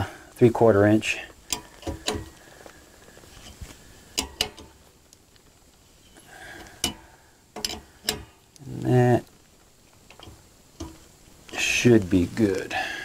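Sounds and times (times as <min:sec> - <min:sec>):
wrench clicking on pipe fitting: 0:07.6 - 0:08.3.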